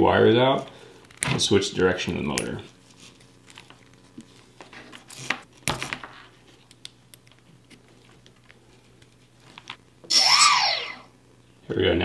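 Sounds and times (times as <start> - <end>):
brushless motors whining: 10.1 - 11.1.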